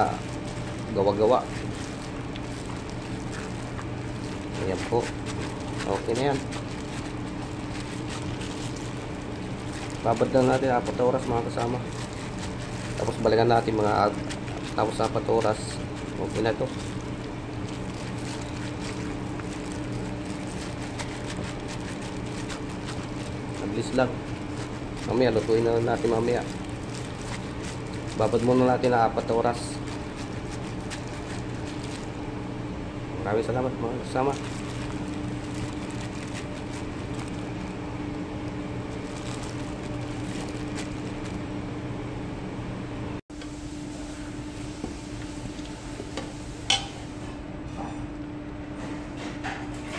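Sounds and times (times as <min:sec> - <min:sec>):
plastic glove crinkles: 0:00.0 - 0:32.3, 0:33.4 - 0:41.6
wet squelches of mixing meat: 0:00.0 - 0:32.3, 0:33.8 - 0:41.4
low droning machine hum: 0:00.0 - 0:49.9.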